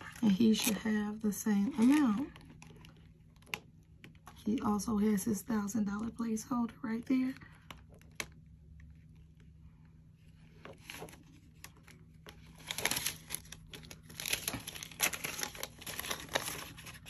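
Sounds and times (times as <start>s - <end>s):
paper banknotes crinkling: 10.8s - 17.0s.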